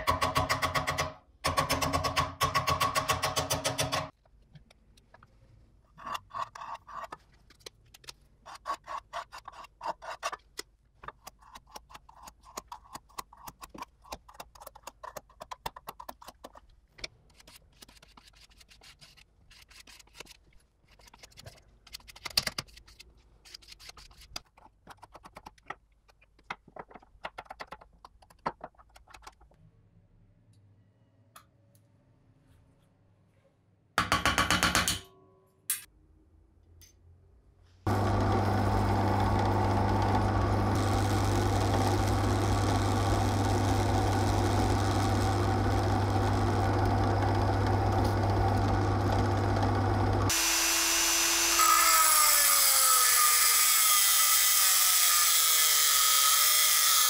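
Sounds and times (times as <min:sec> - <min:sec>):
brush and spatula scraping paste: 0:08.4 - 0:14.4.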